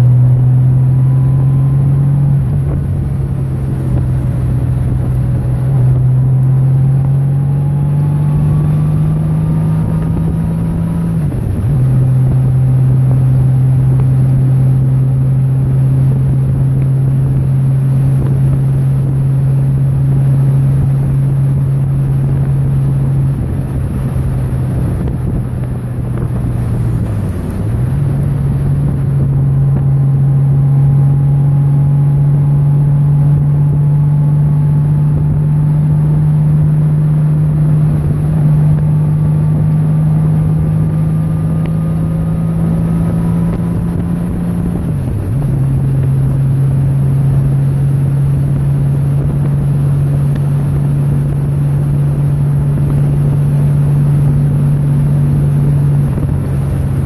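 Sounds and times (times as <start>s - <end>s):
motorcycle engine running: 0.0s - 57.0s
wind rushing over microphone: 0.0s - 57.0s.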